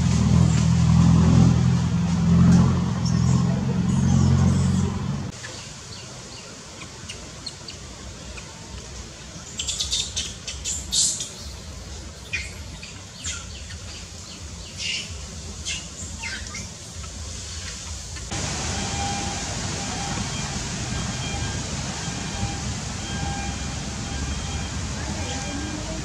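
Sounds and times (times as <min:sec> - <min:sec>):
birds chirping: 0:02.9 - 0:26.0
low steady rumble: 0:11.4 - 0:26.0.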